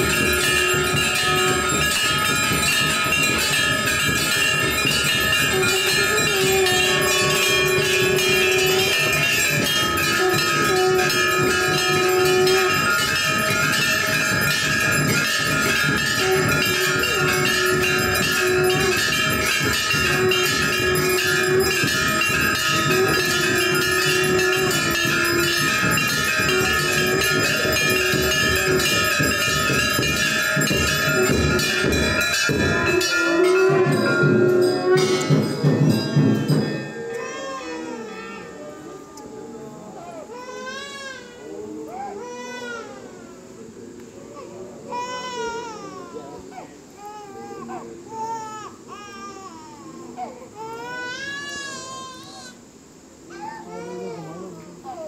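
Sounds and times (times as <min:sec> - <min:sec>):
bells clanging: 0:00.0 - 0:42.4.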